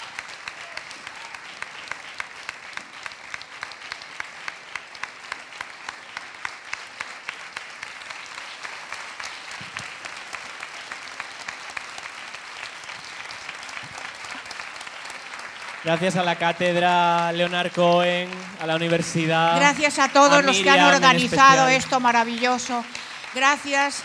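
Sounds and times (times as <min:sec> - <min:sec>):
audience applauding: 0:00.0 - 0:24.0
close hands clapping: 0:00.0 - 0:24.0.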